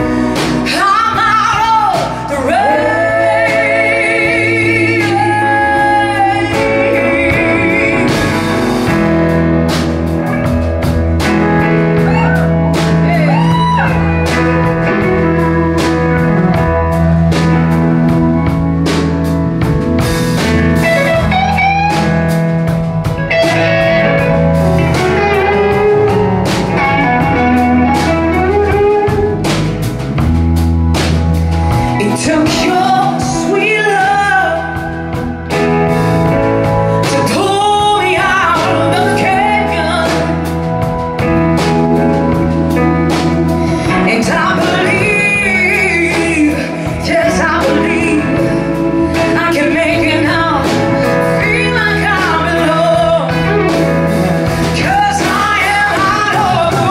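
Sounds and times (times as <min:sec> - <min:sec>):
person singing: 0:00.0 - 0:09.1, 0:12.0 - 0:18.6, 0:31.7 - 0:56.9
live band playing blues-soul: 0:00.0 - 0:56.9.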